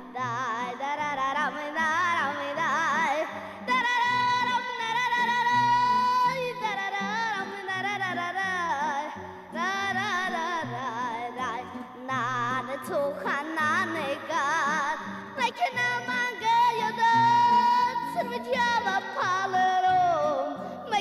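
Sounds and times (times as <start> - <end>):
song with ornamented lead melody: 0.0 - 21.0.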